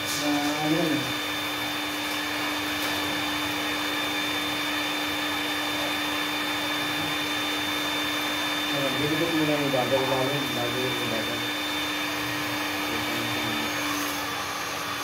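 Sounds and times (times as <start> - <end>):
heat gun fan whirring: 0.0 - 15.0.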